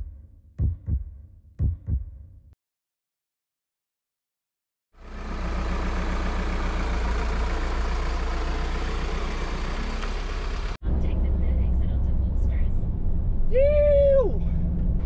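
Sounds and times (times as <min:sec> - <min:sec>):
van engine idling: 0:05.0 - 0:12.7.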